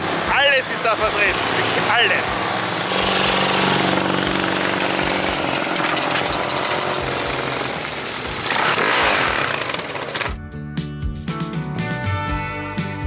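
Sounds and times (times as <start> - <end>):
motorcycle engine passing by: 0.8 - 10.3.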